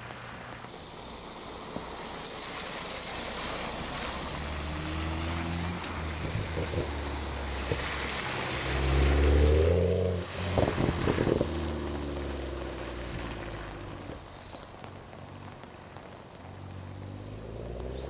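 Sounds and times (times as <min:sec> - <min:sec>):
exhaust crackles: 0:00.0 - 0:18.0
tyres hissing through water: 0:00.0 - 0:18.0
car engine revving: 0:03.9 - 0:14.2, 0:16.7 - 0:18.0.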